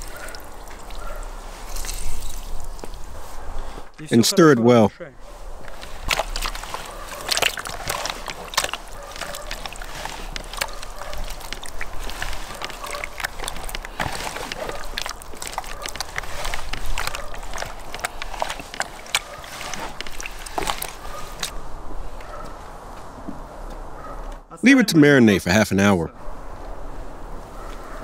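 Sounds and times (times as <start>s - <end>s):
wet slaps and squishes: 0.0s - 1.0s, 5.7s - 21.5s
hands squelching raw fish: 0.0s - 3.7s, 5.6s - 21.5s.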